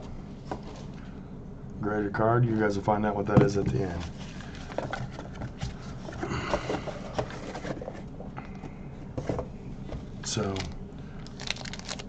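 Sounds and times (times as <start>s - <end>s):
rustling and scraping: 0.0s - 1.2s, 3.4s - 10.7s.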